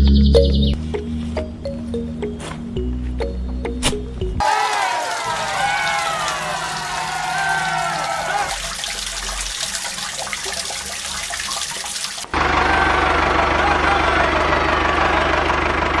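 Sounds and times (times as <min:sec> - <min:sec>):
water trickling and bubbling: 0:05.2 - 0:12.3.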